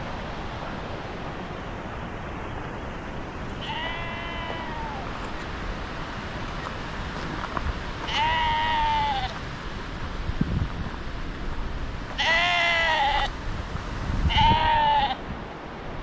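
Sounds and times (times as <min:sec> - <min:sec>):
sheep bleating: 0:03.6 - 0:05.1, 0:08.1 - 0:09.4, 0:12.2 - 0:13.3, 0:14.3 - 0:15.2.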